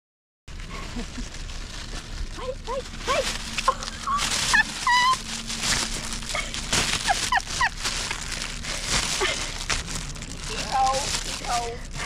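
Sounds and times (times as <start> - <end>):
plastic bag crinkling: 0.5 - 12.0
monkey squeaking: 3.7 - 5.3.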